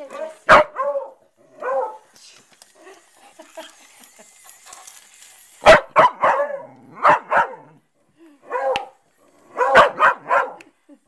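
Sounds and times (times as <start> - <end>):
dog barking: 0.5 - 2.0, 5.6 - 7.8, 8.5 - 10.6.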